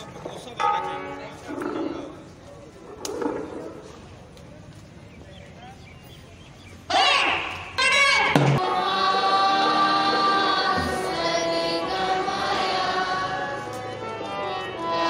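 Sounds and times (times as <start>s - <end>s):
students singing a prayer: 8.5s - 15.0s.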